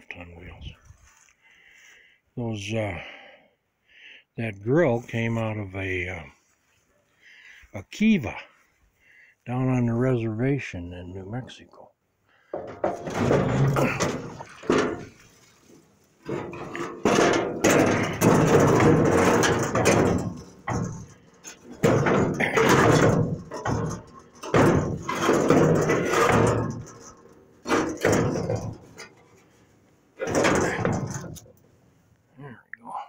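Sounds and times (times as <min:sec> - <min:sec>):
knocking and rubbing on sheet metal: 0:12.6 - 0:15.2, 0:16.3 - 0:29.4, 0:30.2 - 0:31.4.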